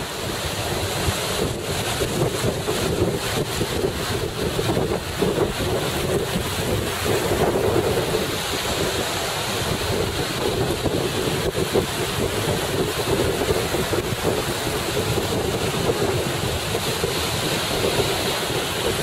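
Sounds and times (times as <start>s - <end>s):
small surf waves: 0.0s - 19.0s
wind buffeting microphone: 0.0s - 19.0s.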